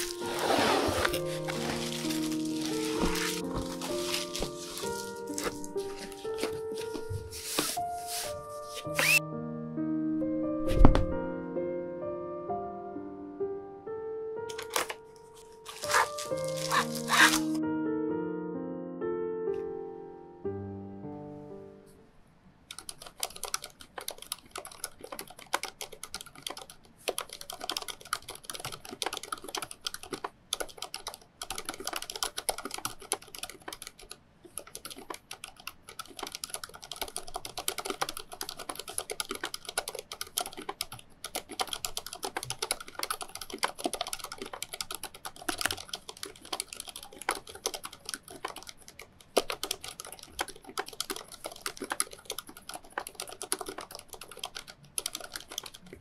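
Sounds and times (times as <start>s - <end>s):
fast keyboard typing: 0.0s - 7.2s, 8.9s - 9.2s, 14.5s - 15.0s, 15.7s - 17.6s, 22.7s - 56.0s.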